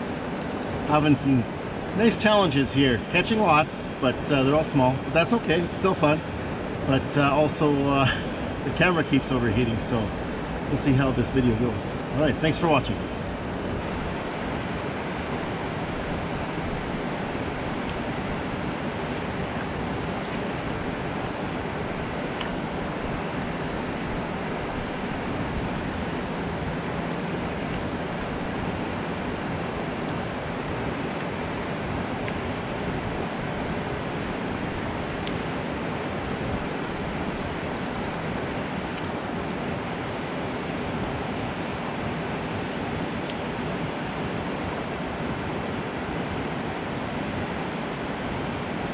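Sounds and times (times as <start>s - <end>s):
water rushing down a spillway: 6.9s - 12.8s.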